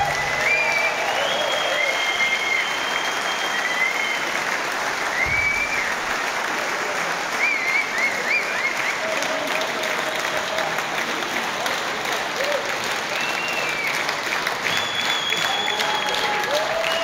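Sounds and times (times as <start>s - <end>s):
whistles: 0.0s - 4.5s, 5.1s - 6.2s, 7.3s - 9.0s, 13.1s - 17.0s
audience applauding: 0.0s - 17.0s.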